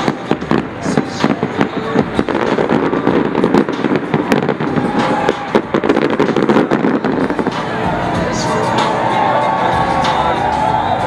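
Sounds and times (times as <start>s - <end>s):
firework shells bursting: 0.0s - 7.7s
continuous din: 0.0s - 11.0s.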